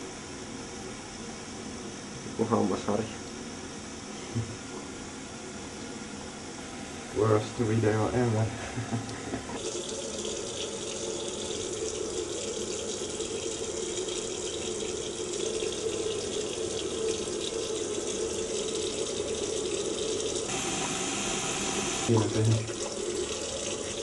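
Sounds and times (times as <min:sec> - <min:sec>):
tap water running into sink: 0:09.5 - 0:24.0.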